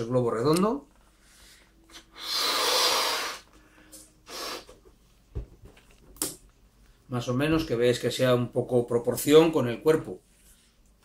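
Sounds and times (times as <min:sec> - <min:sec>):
person blowing up balloon: 0:01.8 - 0:03.6, 0:04.2 - 0:04.8.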